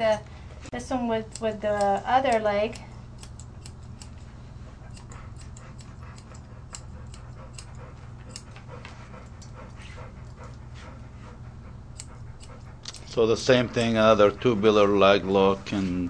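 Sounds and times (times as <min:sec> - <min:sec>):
steady low hum: 0:00.0 - 0:16.0
scissors snipping through fur: 0:00.8 - 0:10.4, 0:12.0 - 0:13.2.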